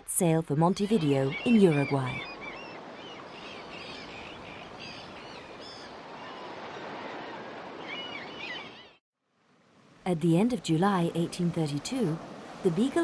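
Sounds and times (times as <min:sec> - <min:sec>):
small birds chirping: 0:01.2 - 0:06.0.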